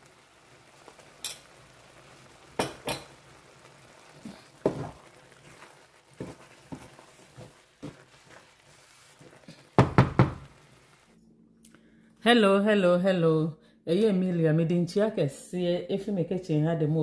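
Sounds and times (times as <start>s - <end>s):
utensil knocking against pan: 9.8s - 10.4s.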